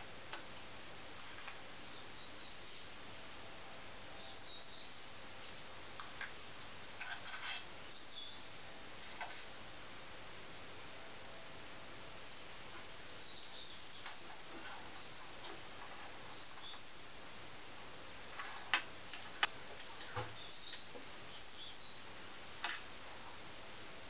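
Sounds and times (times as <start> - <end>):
steady hiss: 0.0 - 24.0
faint bird chirps: 7.8 - 8.8, 13.1 - 14.9, 16.3 - 17.9.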